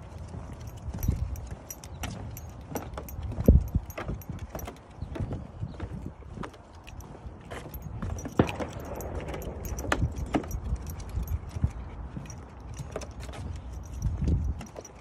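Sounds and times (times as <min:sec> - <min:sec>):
dog tags jingling: 0:00.0 - 0:15.0
footsteps on wooden boards: 0:00.0 - 0:15.0.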